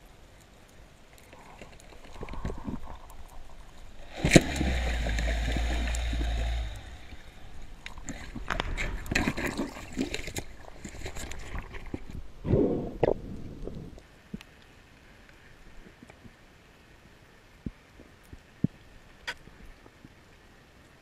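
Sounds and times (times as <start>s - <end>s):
rushing rumbling water: 0.0s - 14.3s
clicks and knocks in water: 1.3s - 12.2s
underwater speargun crack: 4.1s - 6.5s.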